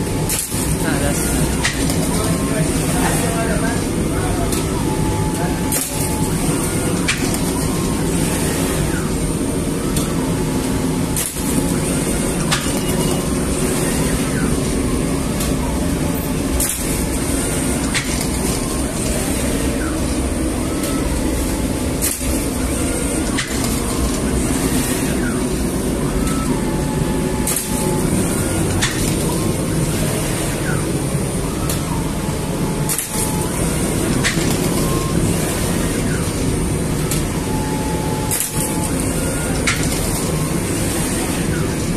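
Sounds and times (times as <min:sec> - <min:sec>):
machine humming: 0:00.0 - 0:41.9
sharp machinery clicks: 0:17.8 - 0:18.6, 0:34.0 - 0:34.7, 0:38.3 - 0:40.4.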